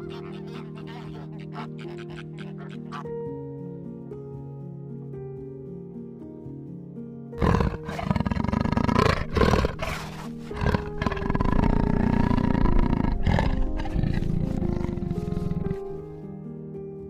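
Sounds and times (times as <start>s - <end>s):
large wild cat growling: 0.0s - 3.1s, 7.4s - 16.2s
soft background music: 0.0s - 17.0s.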